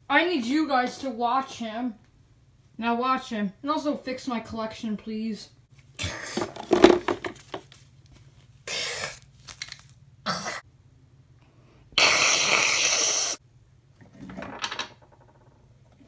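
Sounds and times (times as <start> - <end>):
person making wheezy vocal noises: 8.6 - 9.3, 10.2 - 10.6, 12.0 - 13.4.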